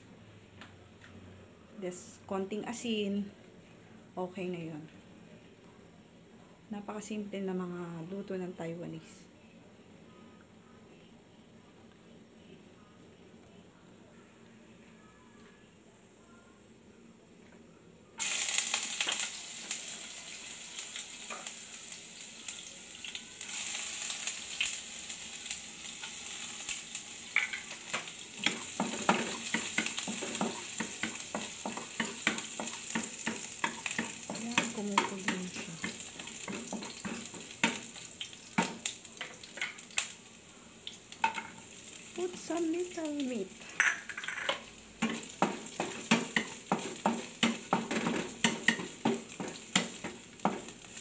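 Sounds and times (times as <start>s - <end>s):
garlic sizzling in oil: 18.2s - 51.0s
wooden spatula knocking pan: 27.4s - 37.9s, 44.5s - 50.8s.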